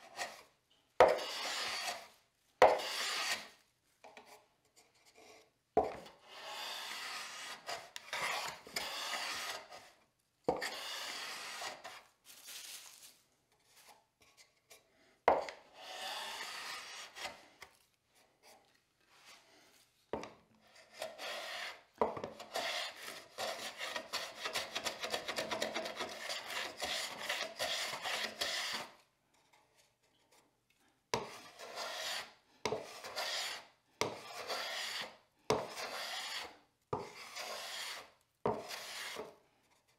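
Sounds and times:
hand plane rasping strokes: 1.0s - 3.5s, 6.3s - 9.8s, 10.6s - 12.0s, 15.7s - 17.4s, 20.8s - 21.8s, 22.4s - 29.0s, 31.2s - 39.3s.

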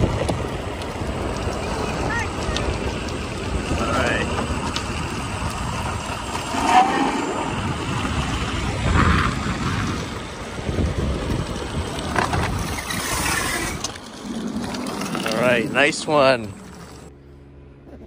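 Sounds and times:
wind rushing on microphone: 0.0s - 13.9s
road noise: 0.0s - 18.0s.

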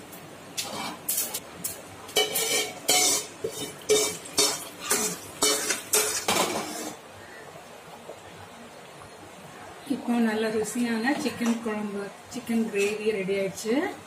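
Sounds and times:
metal spoon scraping a pan: 2.2s - 7.0s.

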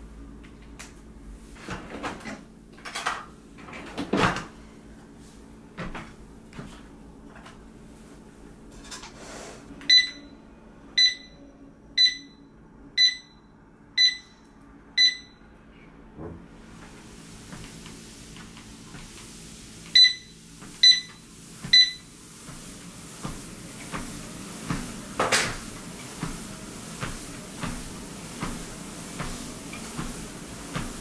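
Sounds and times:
treadmill short electronic beeps: 9.9s - 10.4s, 11.0s - 14.4s, 15.0s - 15.5s, 19.9s - 22.2s.

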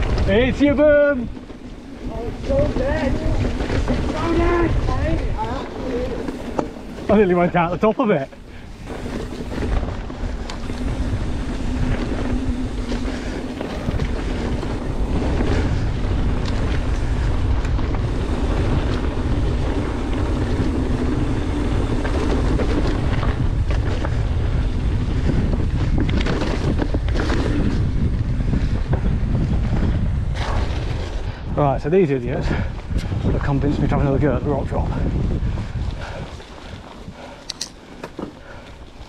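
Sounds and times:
wind rushing over microphone: 0.0s - 37.9s
tyres rolling on dirt trail: 0.0s - 39.0s.

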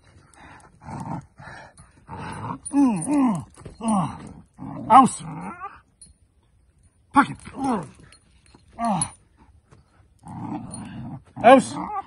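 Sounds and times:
dog growling: 0.8s - 5.8s, 10.2s - 12.0s.

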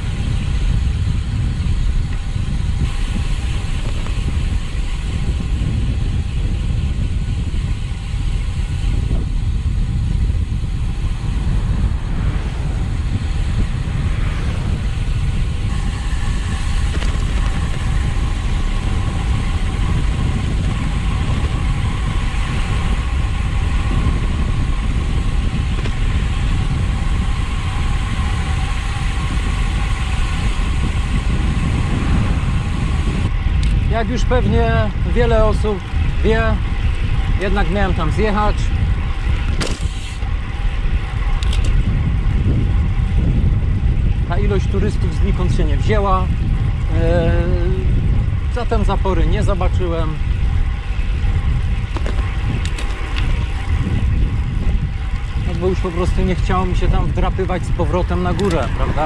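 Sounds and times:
bicycle road noise: 0.0s - 59.0s
wind rumbling on microphone: 0.0s - 59.0s.

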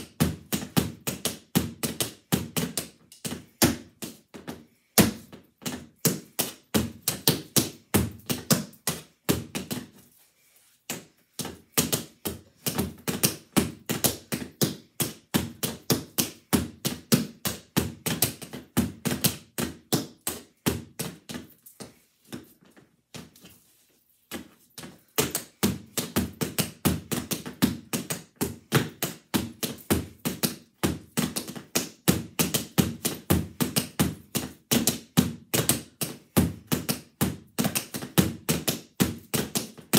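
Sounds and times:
tap shoes striking a board: 25.2s - 39.9s.

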